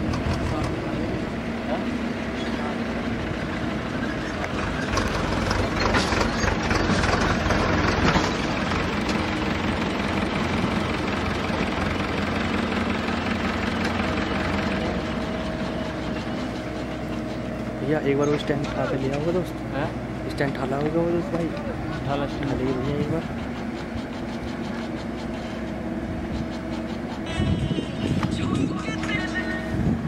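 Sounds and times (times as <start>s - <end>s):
backhoe diesel engine under load: 0.0s - 30.0s.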